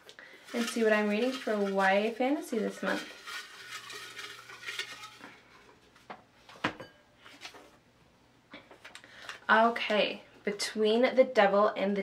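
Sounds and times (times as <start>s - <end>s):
paper slips rustling: 0.3s - 5.3s
paper clinking against glass bowl: 0.4s - 5.6s.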